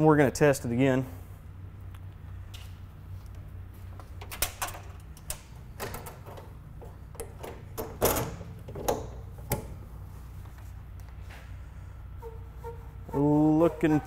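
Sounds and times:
metal latch clicks and clunks: 4.2 - 9.8.

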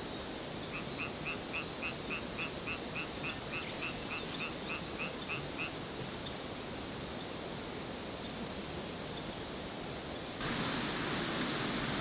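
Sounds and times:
steady hiss: 0.0 - 12.0
frog croaking: 0.7 - 5.8.

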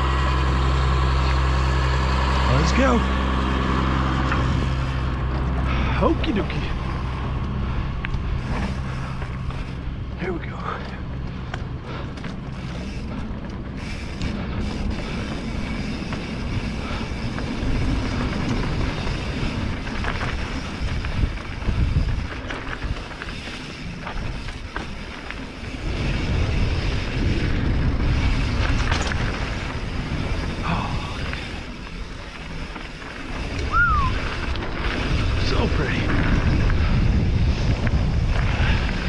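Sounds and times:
bike knocking and rattling: 0.0 - 39.0
bike tyres rolling on dirt: 0.0 - 39.0
wind on microphone: 14.6 - 23.1, 33.4 - 39.0.

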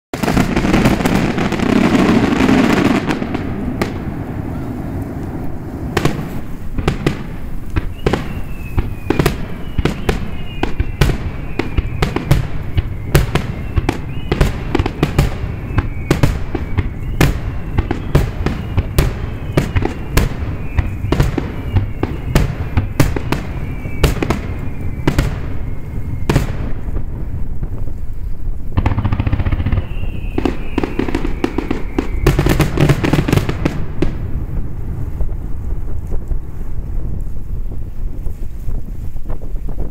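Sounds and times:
fireworks crackling: 0.1 - 39.9
falling whistling tones: 7.7 - 27.1, 28.8 - 33.8.

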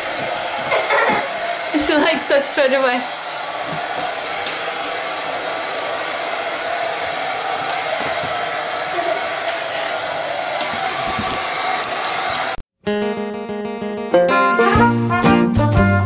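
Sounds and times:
hair dryer blowing air: 0.0 - 12.6.

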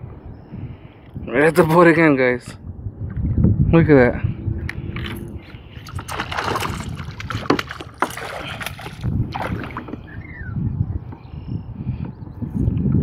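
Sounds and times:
wind rumbling on microphone: 0.0 - 13.0
fish splashing against kayak: 5.8 - 10.0.

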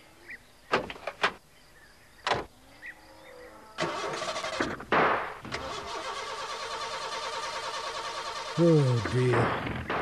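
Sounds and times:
van engine cranking: 3.8 - 4.8, 5.5 - 9.5.

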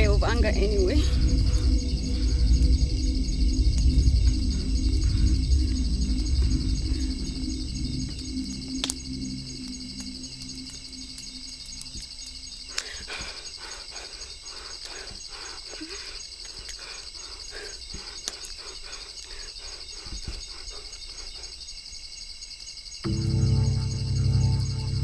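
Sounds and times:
low droning film music: 0.0 - 15.9, 23.0 - 25.0
night insects chorus: 0.0 - 25.0.

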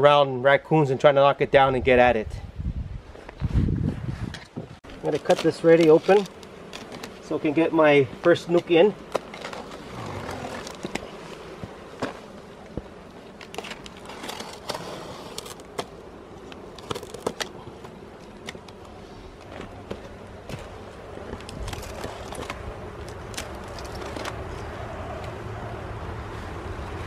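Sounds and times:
utility knife cutting cardboard: 13.4 - 18.9.

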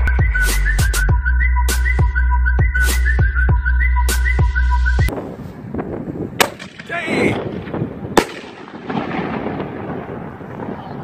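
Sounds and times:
wind noise on microphone: 2.0 - 11.0
firework shell launch bang: 6.4 - 6.9, 8.2 - 9.5
shell bursting overhead: 6.4 - 10.7.

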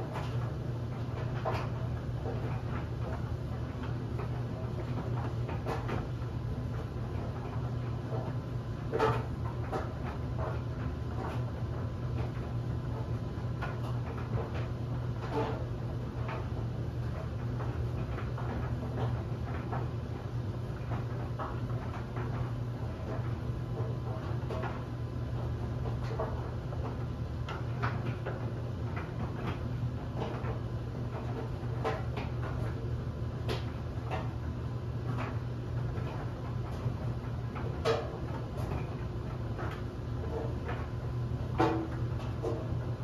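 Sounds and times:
clothes dryer humming: 0.0 - 43.0.

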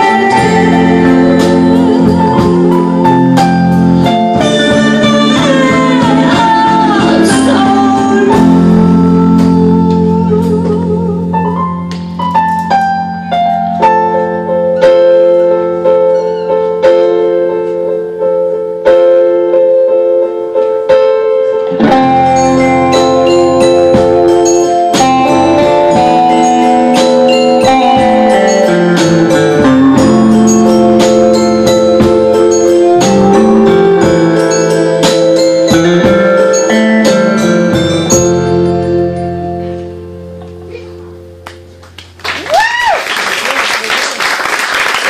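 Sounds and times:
woman singing: 0.0 - 3.3, 4.4 - 11.4
live band playing: 0.0 - 41.8.

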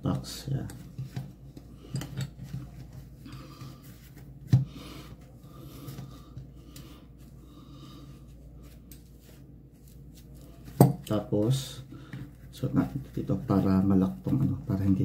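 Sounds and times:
cloth napkin rustling on glass: 8.2 - 11.6.

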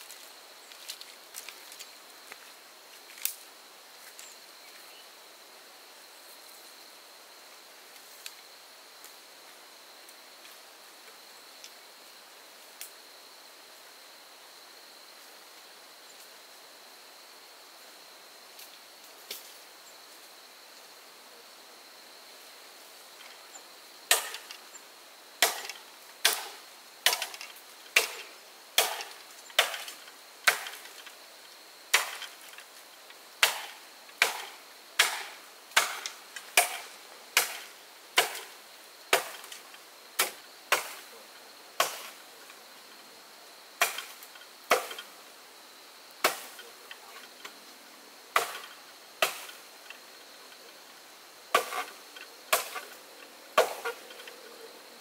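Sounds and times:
wood chopping blows: 24.1 - 24.6, 25.4 - 28.2, 28.8 - 30.9, 31.9 - 32.4, 33.4 - 37.6, 38.2 - 38.5, 39.1 - 39.6, 43.8 - 45.0, 51.5 - 51.9, 53.6 - 54.1.

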